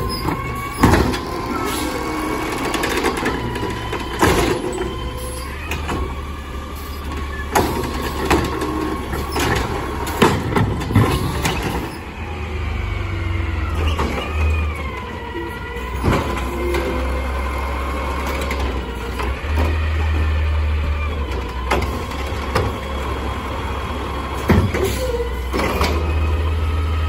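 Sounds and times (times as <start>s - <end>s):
cart banging against truck: 0.0s - 1.5s, 2.5s - 4.9s, 7.5s - 12.0s, 24.4s - 26.1s
garbage truck engine: 0.0s - 27.0s
hydraulic arm whine: 0.0s - 27.0s.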